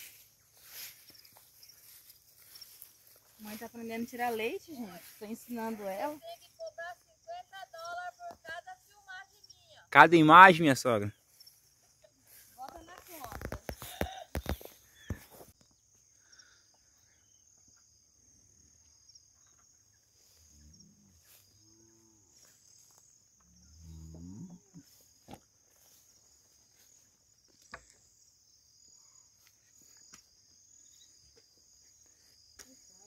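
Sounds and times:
insects chirring: 0.0s - 33.0s.

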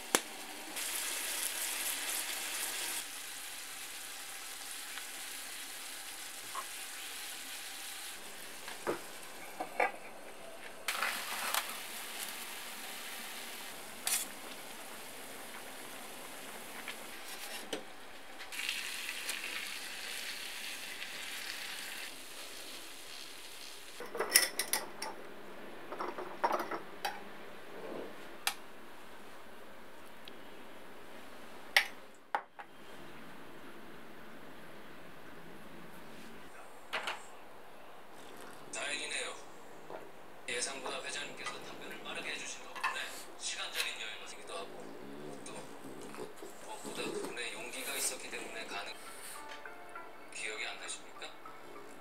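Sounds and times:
sauce sizzling in a skillet: 0.0s - 9.6s, 10.9s - 17.6s, 18.5s - 24.0s.

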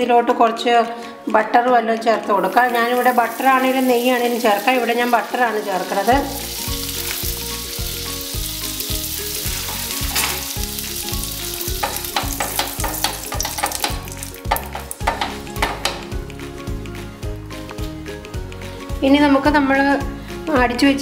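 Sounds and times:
butter sizzling and crackling: 2.4s - 16.2s.

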